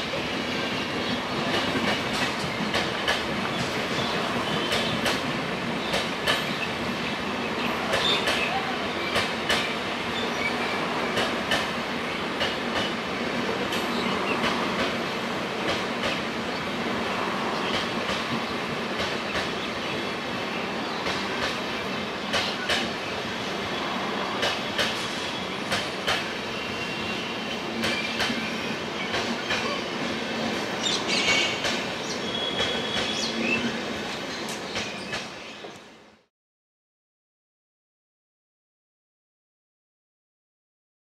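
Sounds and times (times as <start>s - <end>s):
train wheels clacking over rail joints: 1.4s - 6.6s, 7.8s - 9.8s, 10.8s - 11.8s, 12.4s - 15.0s, 15.6s - 16.3s, 17.6s - 19.7s, 21.0s - 21.6s, 22.3s - 23.0s, 24.3s - 26.4s, 27.8s - 28.4s, 29.1s - 29.8s, 30.5s - 33.3s.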